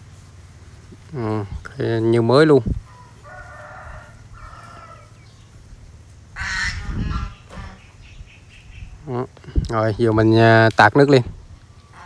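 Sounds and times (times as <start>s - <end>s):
fowl calling: 2.8s - 5.5s, 6.2s - 8.8s, 11.7s - 12.0s.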